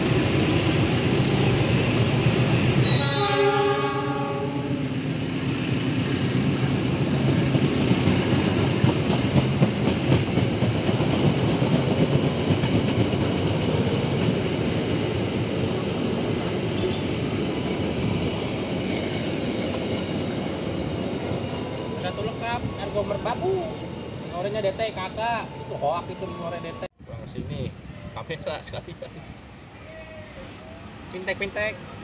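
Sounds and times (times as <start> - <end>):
train wheels clacking over rail joints: 7.4 - 14.6.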